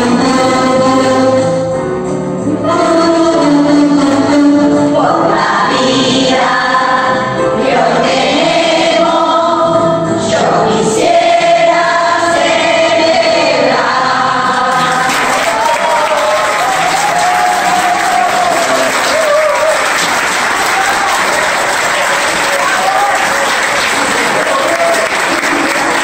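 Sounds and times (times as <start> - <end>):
women singing together: 0.0 - 1.6, 2.4 - 16.4.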